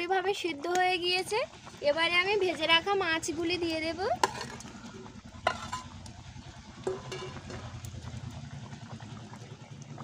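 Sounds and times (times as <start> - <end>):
steady low hum: 1.0 - 10.0
metal spatula scraping pan: 4.2 - 4.7.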